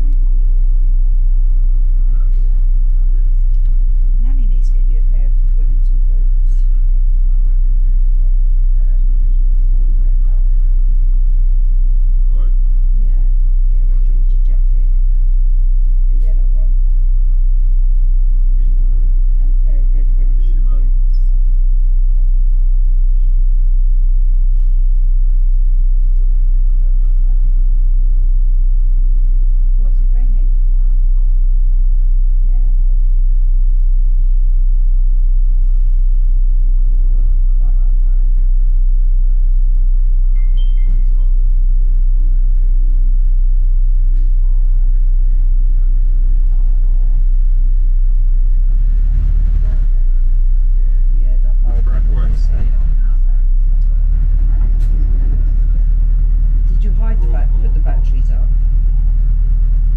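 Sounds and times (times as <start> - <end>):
bus engine rumbling: 0.0 - 22.1, 45.8 - 59.9.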